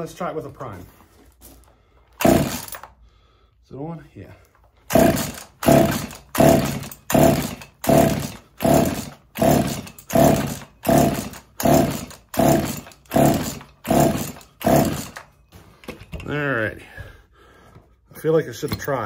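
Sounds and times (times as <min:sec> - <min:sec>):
chainsaw recoil starter pulls: 0:02.1 - 0:03.0, 0:04.8 - 0:15.3.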